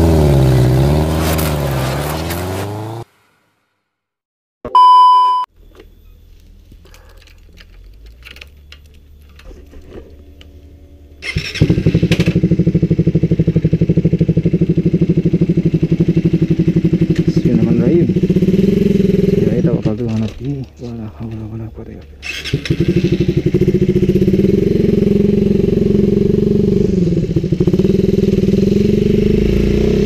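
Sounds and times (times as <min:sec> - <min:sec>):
short loud beep: 0:04.7 - 0:05.5
motorcycle engine starting and idling: 0:05.6 - 0:30.0.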